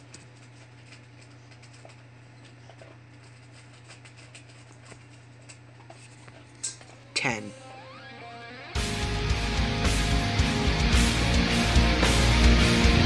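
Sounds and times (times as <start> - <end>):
low steady hum: 0.0 - 8.1.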